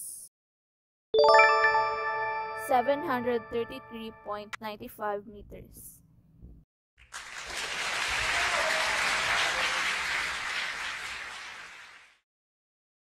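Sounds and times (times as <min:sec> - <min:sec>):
crowd applause: 0:07.0 - 0:12.2.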